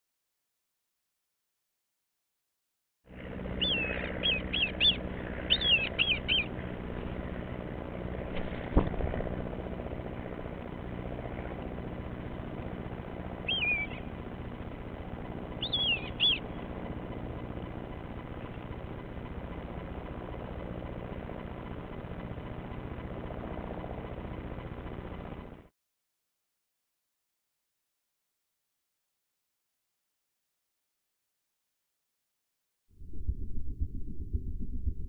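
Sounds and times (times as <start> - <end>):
birds of prey whistling calls: 3.6 - 6.6, 13.4 - 14.2, 15.6 - 16.6.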